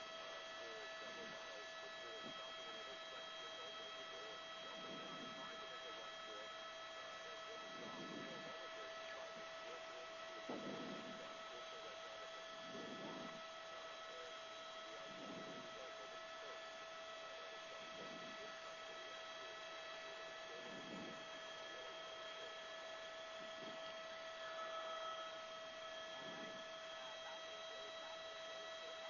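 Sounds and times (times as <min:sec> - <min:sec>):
electrical hum: 0:00.0 - 0:29.0.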